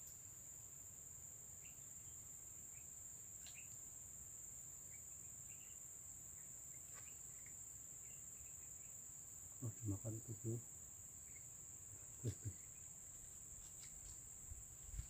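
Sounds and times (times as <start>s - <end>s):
insects droning: 0.0s - 15.0s
bird chirps: 1.6s - 3.8s, 4.8s - 9.0s, 11.2s - 13.0s
faint ticks: 3.4s - 3.8s.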